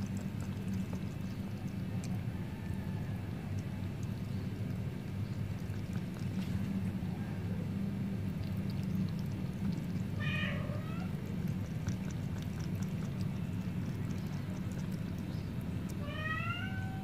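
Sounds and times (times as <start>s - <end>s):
cat lapping water: 0.0s - 17.0s
steady low hum: 0.0s - 17.0s
cat meowing: 10.2s - 11.2s, 16.0s - 17.0s.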